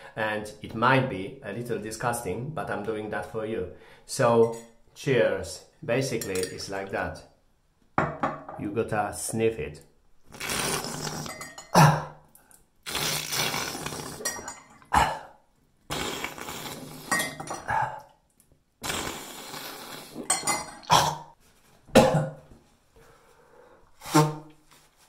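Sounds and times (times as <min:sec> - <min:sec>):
person sniffing salt water: 0:10.3 - 0:11.5, 0:12.8 - 0:15.3, 0:15.9 - 0:18.2, 0:18.8 - 0:20.3.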